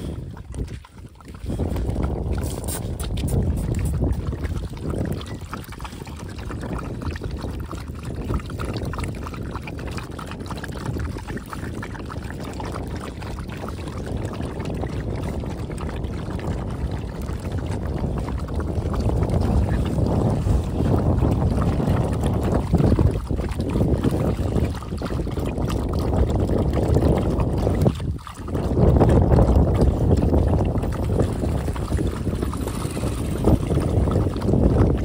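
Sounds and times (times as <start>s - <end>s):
dogs lapping milk: 0.0s - 35.0s
milk pouring into plastic tub: 0.0s - 35.0s
wind rumbling on microphone: 0.0s - 35.0s.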